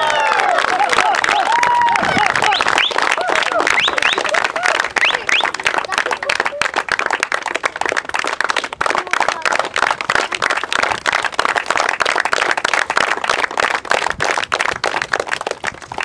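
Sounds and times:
people applauding: 0.0s - 16.0s.

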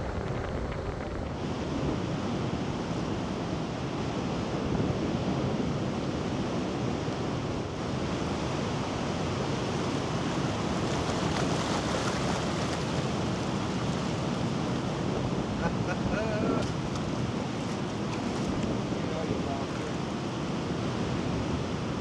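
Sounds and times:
wind buffeting microphone: 0.0s - 22.0s
surf breaking over rocks: 9.3s - 22.0s.

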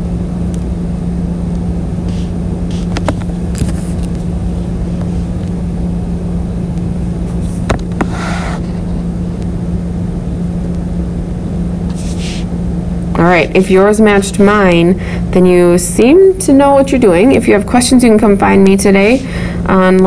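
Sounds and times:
low electrical hum: 0.0s - 20.0s
rumbling background noise: 0.0s - 20.0s.

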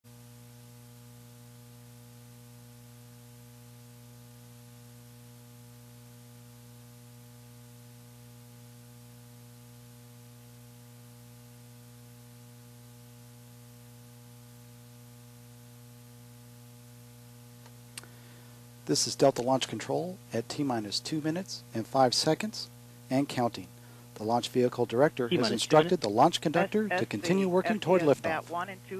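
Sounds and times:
low electrical hum: 0.1s - 28.9s
constant hiss: 15.5s - 28.9s.

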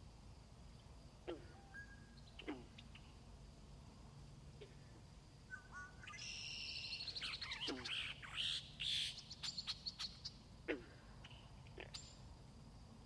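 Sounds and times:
frogs calling: 1.2s - 3.3s, 4.5s - 12.4s.

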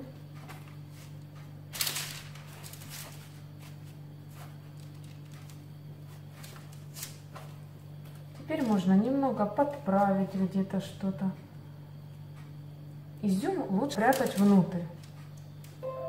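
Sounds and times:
steady low hum: 0.0s - 16.0s
baking paper rustling: 0.3s - 10.3s, 13.9s - 15.4s.

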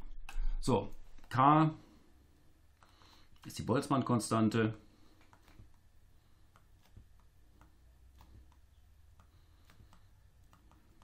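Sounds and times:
low steady hum: 0.0s - 11.0s
stylus tapping on pen tablet: 6.4s - 11.0s.

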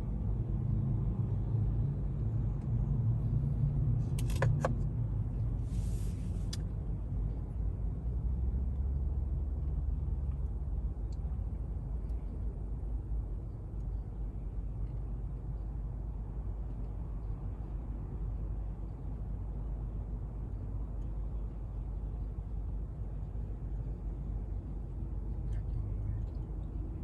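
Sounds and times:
brief hiss: 5.6s - 6.6s.

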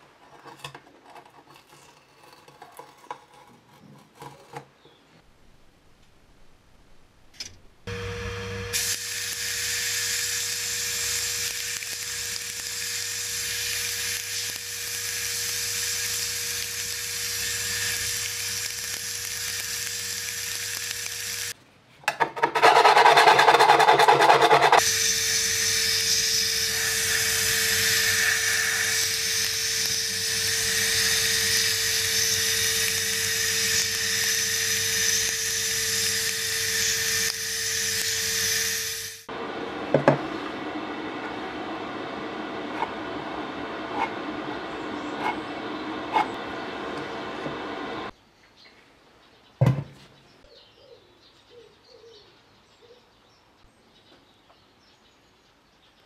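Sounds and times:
sandblast gun hissing: 24.8s - 39.5s
steady hum: 38.0s - 48.1s.

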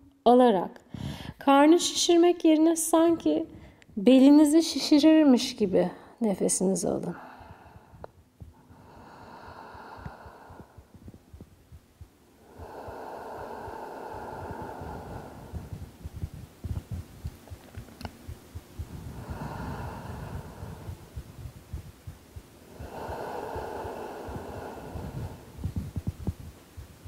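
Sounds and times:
woman breathing deeply: 0.9s - 1.4s, 7.2s - 17.2s, 18.4s - 26.8s
low soft thumps: 7.4s - 27.0s.

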